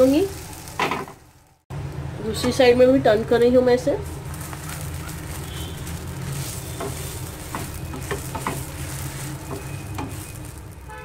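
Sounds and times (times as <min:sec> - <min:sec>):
bread sizzling in oil: 0:00.0 - 0:01.6, 0:04.0 - 0:11.0
spatula scraping a pan: 0:06.2 - 0:10.6.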